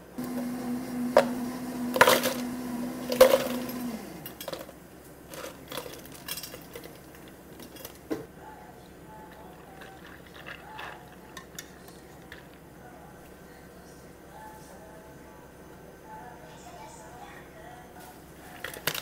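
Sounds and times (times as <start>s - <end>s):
machine hum: 0.0s - 4.9s
coffee pouring: 0.2s - 4.4s, 9.2s - 12.6s
ice clinking: 1.2s - 4.7s, 9.3s - 12.6s
ice cubes clattering into cups: 1.9s - 4.7s, 5.3s - 7.9s, 9.6s - 12.6s, 18.6s - 19.0s.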